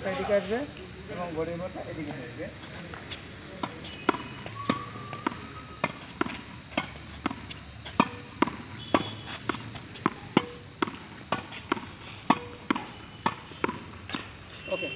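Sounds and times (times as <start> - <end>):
racket hitting tennis ball: 3.6 - 14.3.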